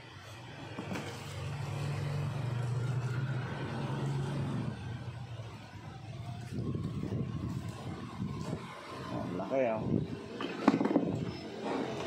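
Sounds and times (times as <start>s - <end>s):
vehicle engine humming: 0.0s - 9.1s
cardboard and plastic wrap rustling: 0.7s - 1.6s.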